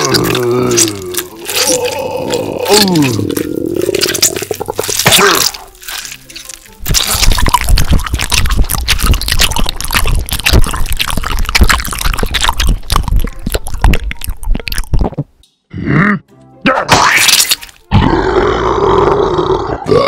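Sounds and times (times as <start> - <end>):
wet goo squelching: 0.0 - 15.4.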